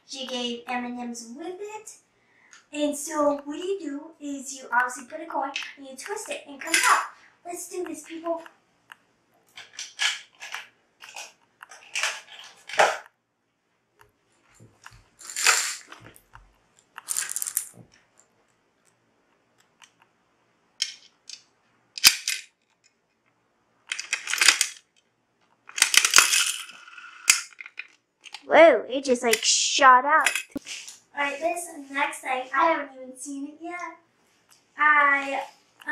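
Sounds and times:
candy rattling out: 15.2 - 16.0, 17.0 - 17.8, 23.9 - 24.9, 25.7 - 27.9
gumball machine clicking and rattling: 23.9 - 25.0, 25.7 - 28.5.

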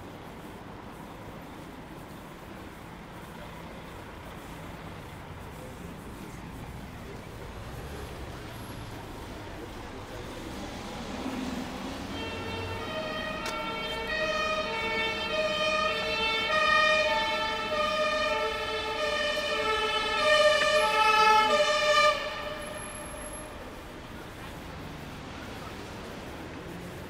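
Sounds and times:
two-tone emergency siren: 11.4 - 23.8.

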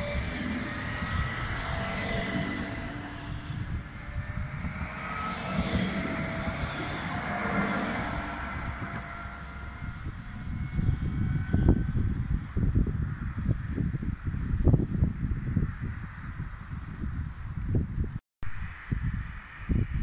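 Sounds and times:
tram wheels rumbling on rails: 0.0 - 13.4
electric drive whine: 0.0 - 17.8.

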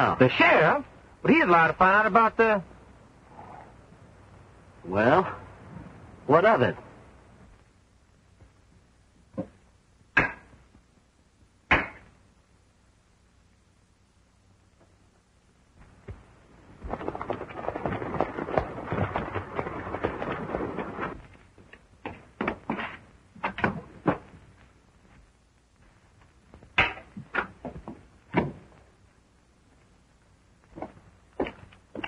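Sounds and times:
knocks and thumps: 9.3 - 10.8, 15.8 - 24.6, 26.5 - 28.8, 30.6 - 32.0
horses hooves clattering: 16.0 - 21.7.

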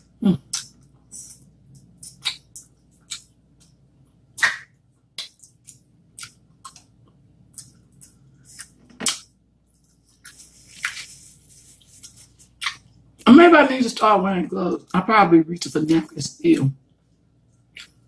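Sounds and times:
wet mouth clicks and smacks: 0.5 - 3.8, 4.4 - 6.9, 12.6 - 12.8.

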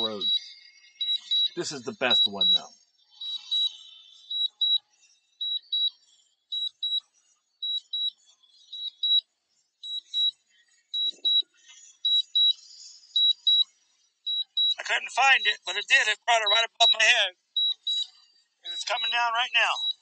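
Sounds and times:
high double beeps: 1.2 - 2.7, 14.6 - 17.8, 18.7 - 20.0.

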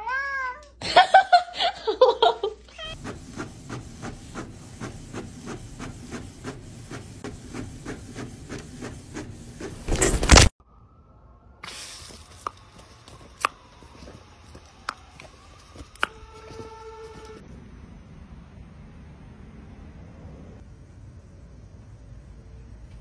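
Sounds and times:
cat meowing: 0.0 - 0.8, 2.7 - 3.0
printer low hum: 3.0 - 10.5.

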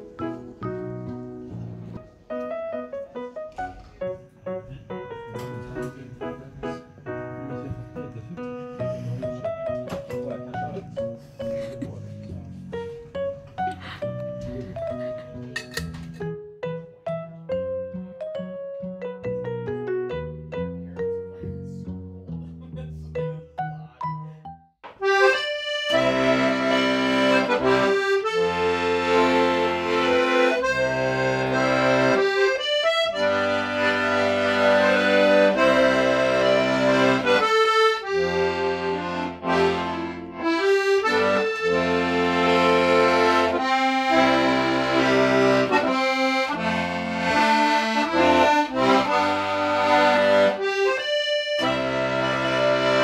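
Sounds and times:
accordion playing folk tune: 0.0 - 12.2, 24.9 - 53.0.

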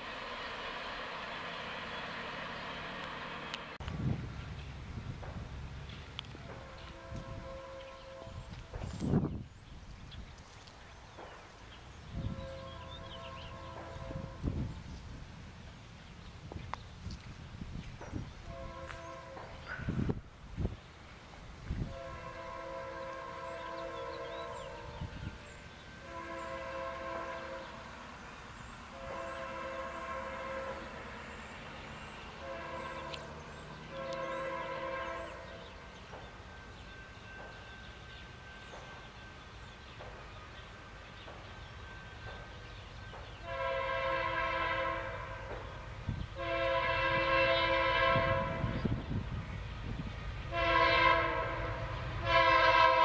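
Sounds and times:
train rumble: 0.0 - 53.0
locomotive air horn: 6.4 - 8.6, 12.2 - 14.6, 18.4 - 20.0, 21.8 - 25.4, 26.0 - 27.9, 28.9 - 31.1, 32.4 - 33.3, 33.9 - 35.6, 43.4 - 45.6, 46.4 - 49.0, 50.5 - 53.0.

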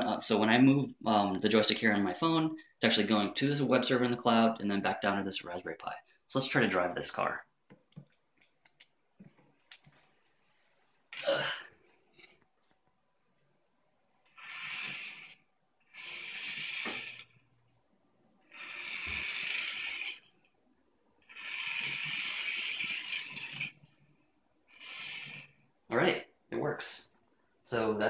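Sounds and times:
toy car motor whirring: 14.3 - 17.4, 18.5 - 20.4, 21.2 - 23.9, 24.7 - 25.6.

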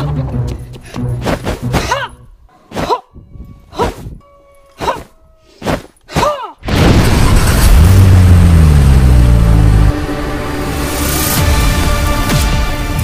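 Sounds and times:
loud sustained fire rush: 6.6 - 12.0.

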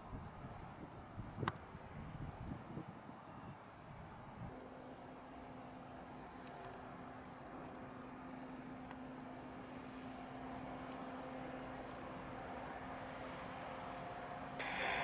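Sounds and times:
tow tractor humming: 4.8 - 15.0
insect chirping: 9.2 - 15.0.

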